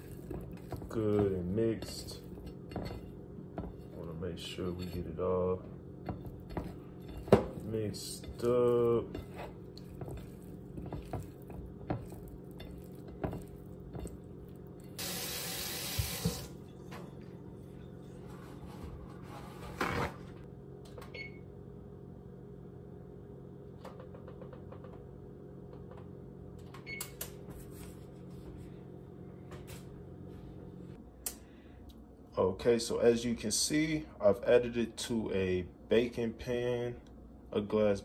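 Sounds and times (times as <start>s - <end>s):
tap water running: 14.9s - 16.7s.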